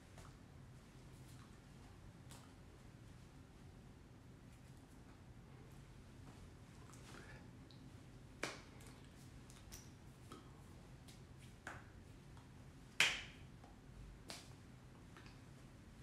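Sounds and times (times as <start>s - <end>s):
faint room hum: 0.0s - 16.0s
hands clapping and tapping: 8.4s - 8.7s, 13.0s - 14.5s.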